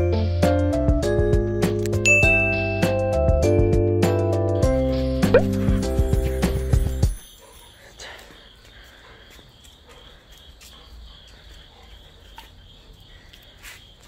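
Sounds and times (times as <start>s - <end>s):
crickets chirring: 5.5s - 14.0s.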